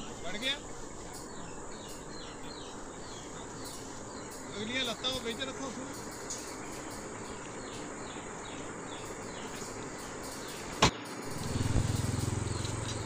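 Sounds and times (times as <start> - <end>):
motorcycle engine passing: 11.1 - 13.0.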